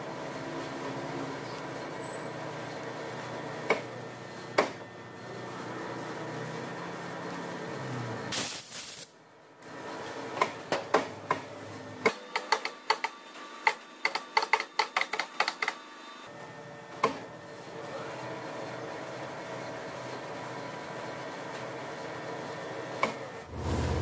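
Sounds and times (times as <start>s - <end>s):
brief loud hiss: 8.3s - 9.1s.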